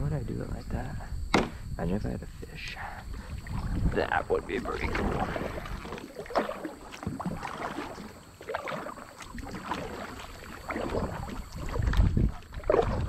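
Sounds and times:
water slapping hull: 3.1s - 13.0s
paddle splashing in water: 4.6s - 13.0s.

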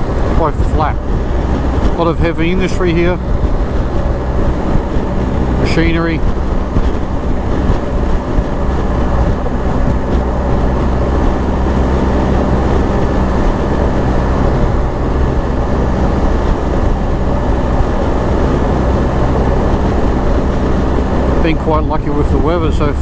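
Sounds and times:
motorcycle engine cruising: 0.0s - 23.0s
wind and road noise: 0.0s - 23.0s.

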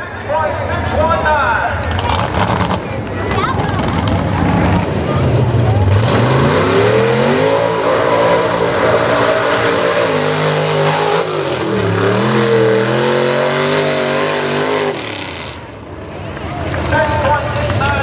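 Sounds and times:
pickup engine revving hard: 5.8s - 15.7s.

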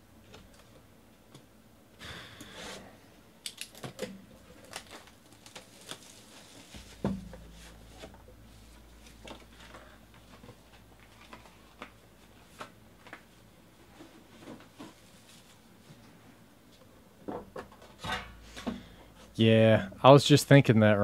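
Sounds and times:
plastic wrap crinkling: 4.5s - 7.0s.

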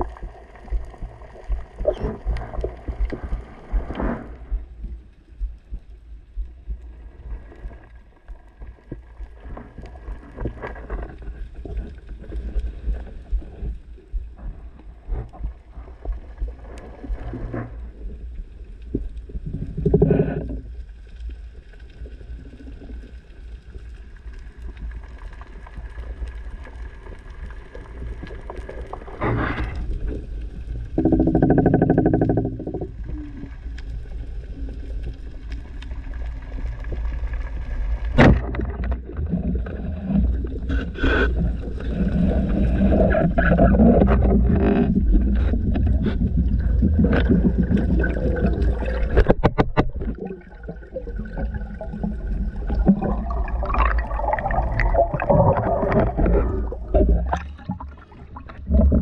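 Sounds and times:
underwater water rumble: 0.0s - 59.0s
water surge: 45.2s - 59.0s.

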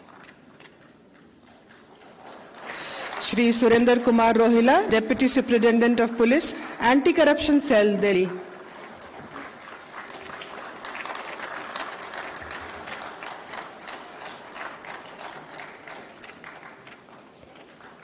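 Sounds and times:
audience applauding: 1.9s - 4.2s, 8.4s - 18.0s.

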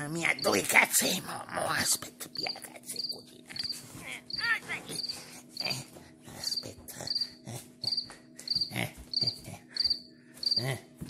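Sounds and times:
cricket chirping from phone: 0.4s - 0.6s, 2.4s - 5.8s, 6.4s - 10.7s.

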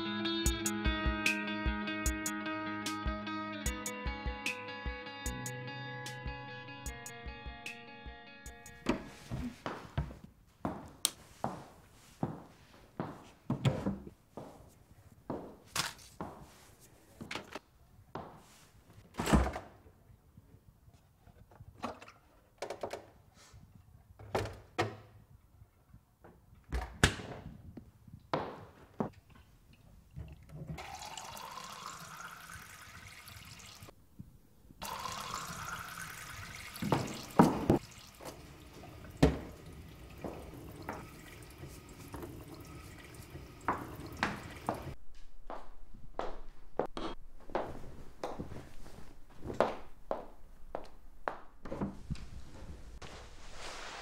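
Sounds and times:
container filling with water: 30.8s - 33.9s, 34.8s - 45.0s
tap running into sink: 36.1s - 45.0s.

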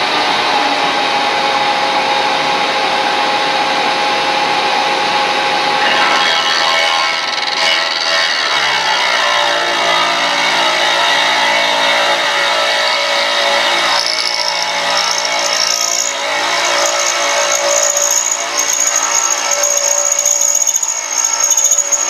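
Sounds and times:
high whine: 0.0s - 22.0s
milling machine cutting: 5.8s - 22.0s.

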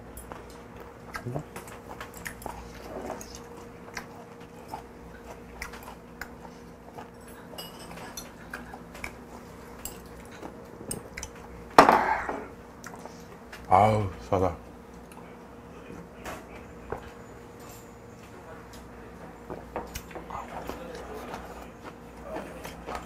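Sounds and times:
steady low hum: 0.0s - 23.0s
chewing and mouth clicks: 0.2s - 11.5s, 12.8s - 13.7s, 19.9s - 22.0s.

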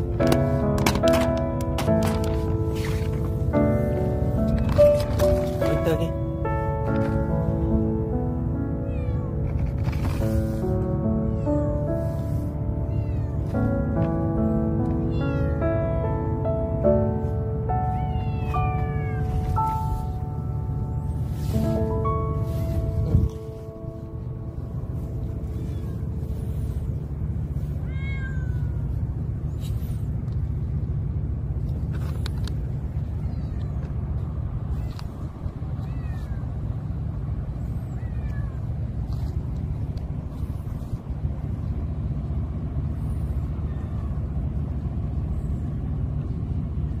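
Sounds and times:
steady low rumble: 0.0s - 47.0s
cats meowing: 8.5s - 16.4s, 17.0s - 30.1s, 32.9s - 39.4s, 43.3s - 44.4s.

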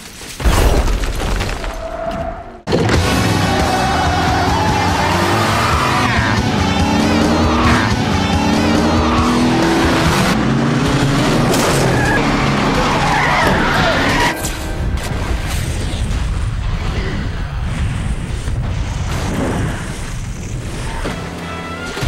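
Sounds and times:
background music: 2.8s - 16.2s
car engine revving hard: 3.0s - 14.3s
tyres squealing: 11.7s - 14.4s.

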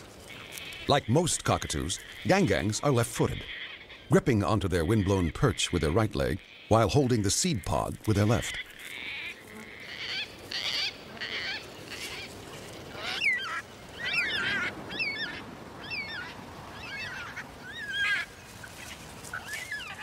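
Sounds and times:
parrots calling: 8.1s - 20.0s.

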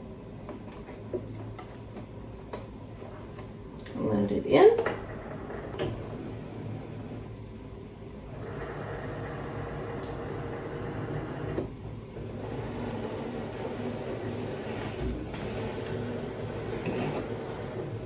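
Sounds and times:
cutting machine motor and rollers: 5.0s - 7.3s, 8.3s - 18.0s.

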